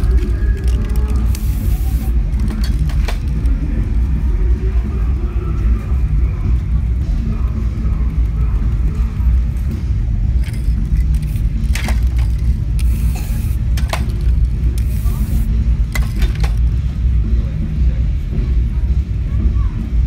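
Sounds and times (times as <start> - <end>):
low rumble: 0.0 - 20.0
spray can hissing: 0.6 - 2.5, 10.5 - 16.1.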